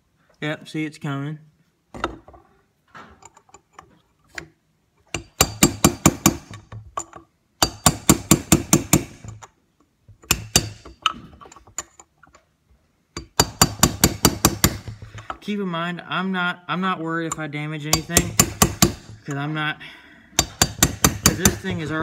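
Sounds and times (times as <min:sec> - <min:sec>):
hammer striking metal: 0:07.6 - 0:09.4, 0:10.3 - 0:11.0, 0:13.2 - 0:15.0, 0:17.9 - 0:19.2, 0:20.4 - 0:22.0.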